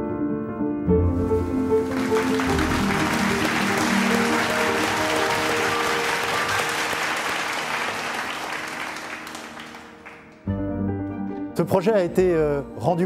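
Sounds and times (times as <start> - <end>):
instrumental background music: 0.0 - 7.5, 8.2 - 13.0
audience applauding: 1.4 - 10.5.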